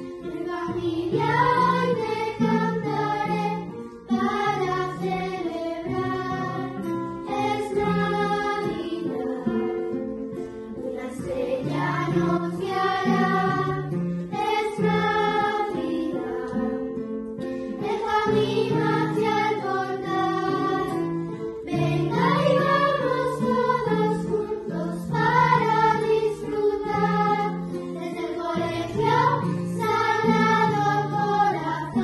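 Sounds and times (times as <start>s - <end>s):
acoustic guitar: 0.0s - 32.0s
girls choir singing: 0.0s - 32.0s.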